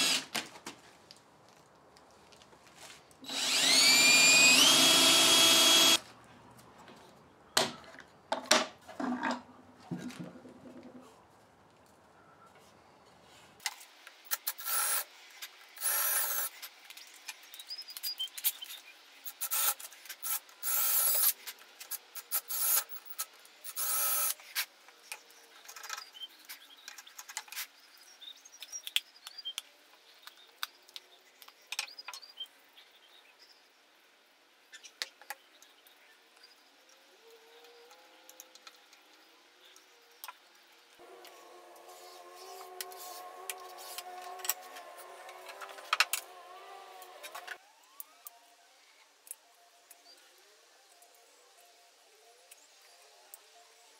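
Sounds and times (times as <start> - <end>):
cordless drill running: 0.0 - 0.3, 3.2 - 6.0.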